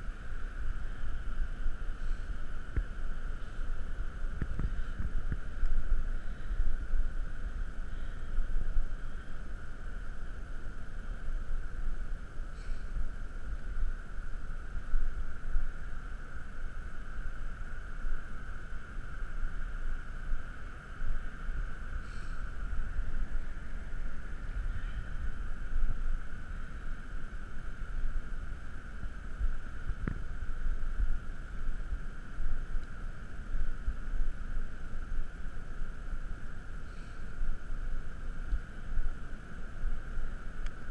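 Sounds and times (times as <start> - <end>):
steady hiss: 0.0 - 40.9
wind rumbling on microphone: 0.0 - 40.9
faint clicks: 32.8 - 33.4, 40.6 - 40.9.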